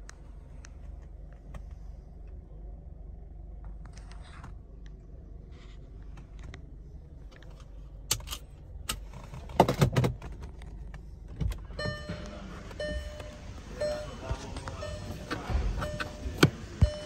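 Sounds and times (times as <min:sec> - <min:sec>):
steady low hum: 0:00.0 - 0:17.0
clicks and taps in car cabin: 0:07.3 - 0:17.0.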